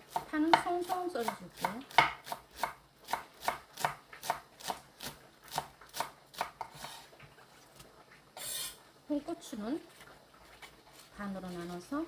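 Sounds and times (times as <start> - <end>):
knife chopping on wooden board: 0.1 - 7.0.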